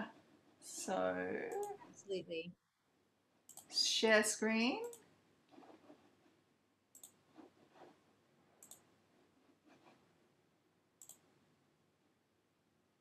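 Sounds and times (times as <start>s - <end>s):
faint computer mouse clicks: 3.5s - 3.7s, 6.9s - 7.2s, 8.6s - 8.9s, 11.0s - 11.2s.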